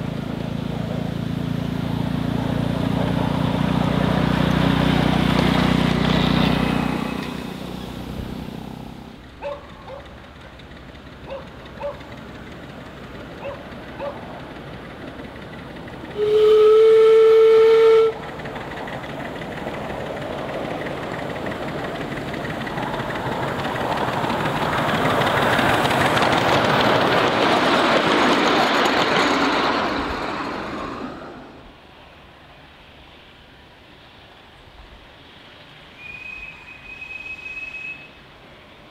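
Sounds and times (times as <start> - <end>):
train running on track: 0.0 - 38.9
steam locomotive whistle: 16.1 - 18.3, 35.9 - 38.3.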